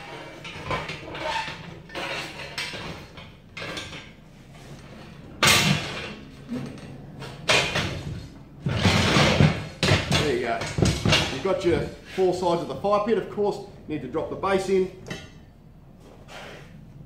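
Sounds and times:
loud metal clanks: 0:05.4 - 0:12.0.

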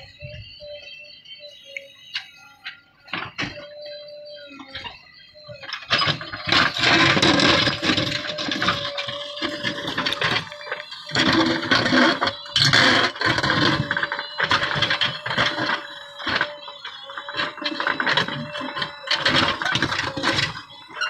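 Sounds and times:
diesel engine under load: 0:00.0 - 0:21.0
steady whine: 0:00.0 - 0:21.0
rocks scraping and clattering: 0:05.8 - 0:21.0.

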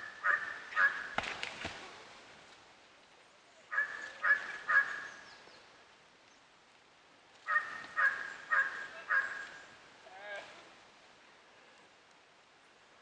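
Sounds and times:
wild dogs yelping: 0:00.1 - 0:01.1, 0:03.7 - 0:05.1, 0:07.5 - 0:09.5.

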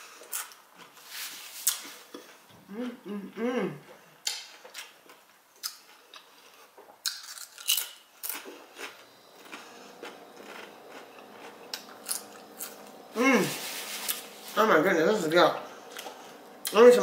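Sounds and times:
crunching tortilla chip: 0:04.8 - 0:13.0.

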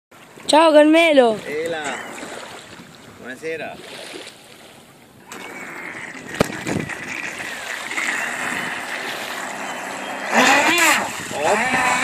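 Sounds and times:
boat wake hiss: 0:01.4 - 0:12.0
model boat motor whine: 0:05.2 - 0:12.0.

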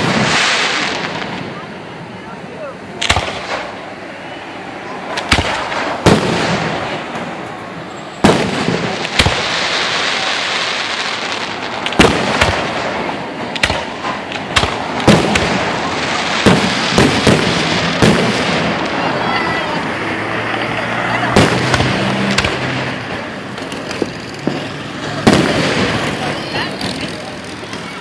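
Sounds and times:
background noise: 0:00.0 - 0:28.0
firework shells bursting: 0:05.1 - 0:07.5, 0:08.2 - 0:19.0, 0:21.3 - 0:28.0.

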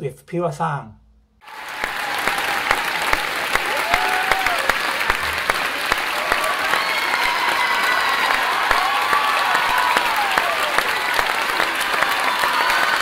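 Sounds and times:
crowd clapping: 0:01.4 - 0:13.0
crowd shouts and whistles: 0:01.4 - 0:13.0.

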